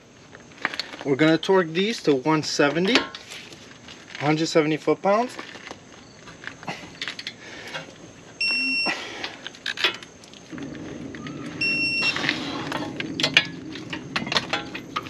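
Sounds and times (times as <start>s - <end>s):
torque wrench beeping: 8.4s - 8.9s, 11.6s - 12.3s
low rumble: 10.5s - 15.0s.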